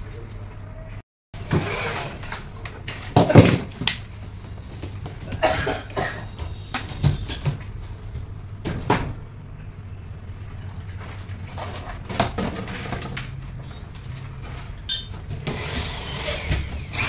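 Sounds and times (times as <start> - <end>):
panels knocking and clattering: 2.8 - 3.9, 11.0 - 15.5.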